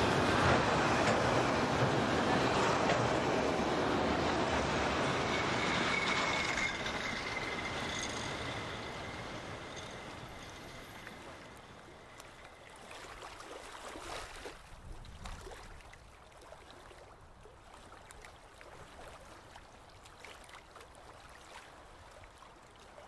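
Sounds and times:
water trickling: 0:08.6 - 0:23.0.

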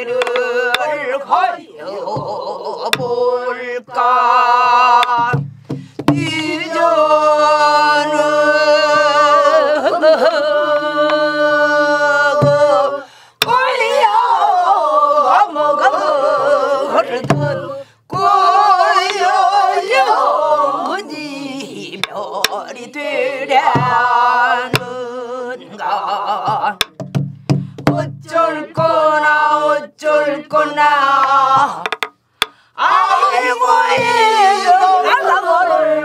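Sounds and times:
traditional singing with vibrato: 0:00.0 - 0:27.0, 0:27.6 - 0:36.0
sharp knocks: 0:05.0 - 0:06.4, 0:26.8 - 0:28.2, 0:31.6 - 0:32.6.

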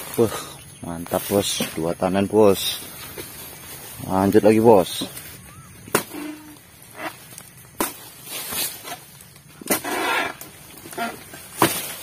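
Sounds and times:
palm fronds rustling: 0:00.0 - 0:12.0
chisel chopping into palm: 0:05.9 - 0:06.2, 0:11.6 - 0:12.0.

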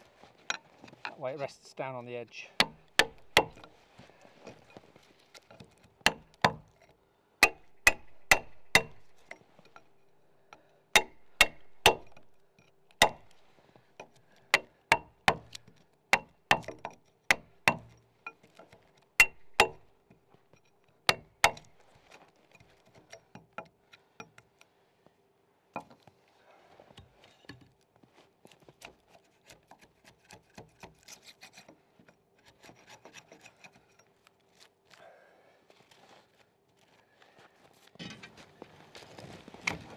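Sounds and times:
chisel knocking into wood: 0:02.6 - 0:03.7, 0:07.4 - 0:09.0, 0:13.0 - 0:13.3
chisel scraping wood: 0:02.6 - 0:06.8, 0:28.5 - 0:34.7.

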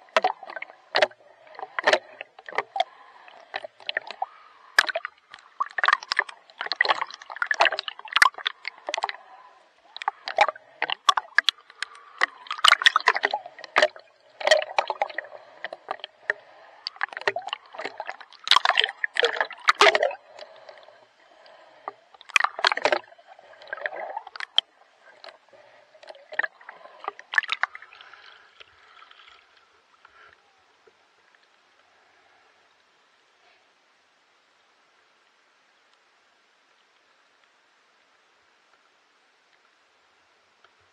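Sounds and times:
water splashing from swimming: 0:00.0 - 0:29.5.

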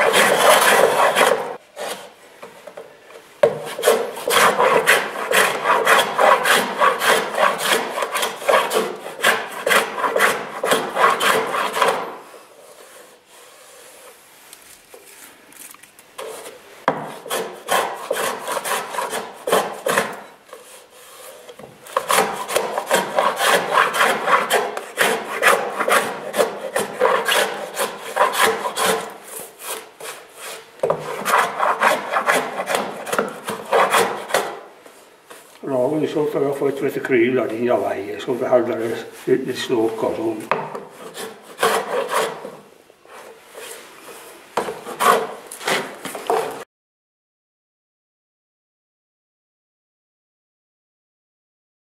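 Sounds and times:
hand plane shaving wood: 0:00.0 - 0:02.2, 0:03.4 - 0:14.2, 0:16.2 - 0:34.7, 0:37.7 - 0:46.6.

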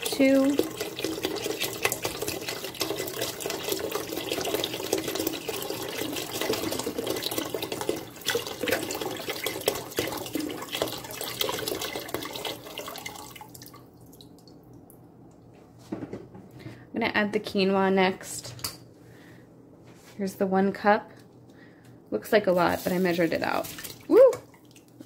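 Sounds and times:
broth pouring into pot: 0:00.2 - 0:13.7.

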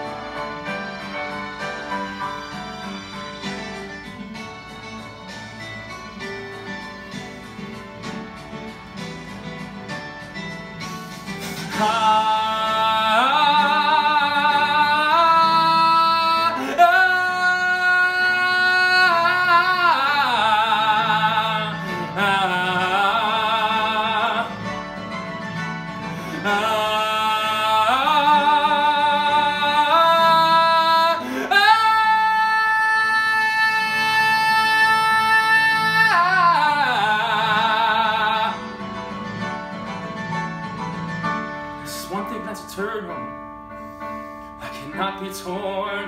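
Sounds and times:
man singing: 0:11.4 - 0:25.1, 0:26.0 - 0:39.1, 0:41.8 - 0:43.5, 0:44.6 - 0:46.0.

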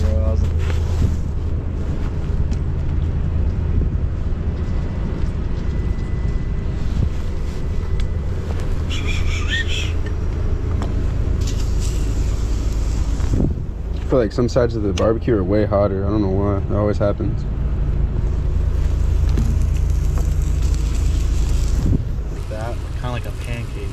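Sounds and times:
steady low rumble: 0:00.0 - 0:23.9
high chirp: 0:08.8 - 0:10.1.

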